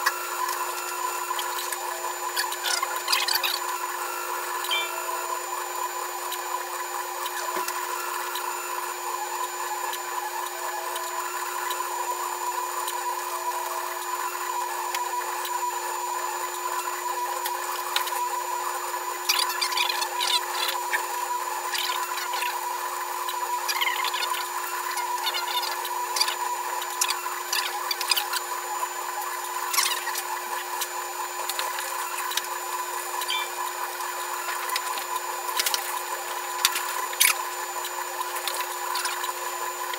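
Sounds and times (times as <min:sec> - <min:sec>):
stepper motors whining: 0:00.0 - 0:39.9
print head ticks and chirps: 0:00.4 - 0:05.4, 0:19.3 - 0:22.6, 0:23.2 - 0:28.4, 0:33.2 - 0:33.7.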